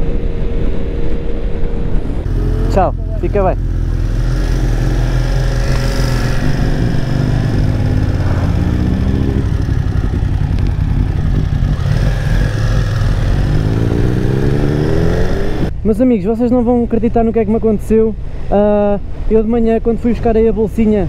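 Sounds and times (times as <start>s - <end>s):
motorcycle engine accelerating: 0.0s - 15.7s.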